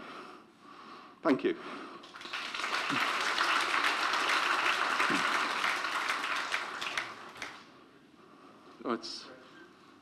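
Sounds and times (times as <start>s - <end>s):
audience applauding: 2.0s - 7.7s.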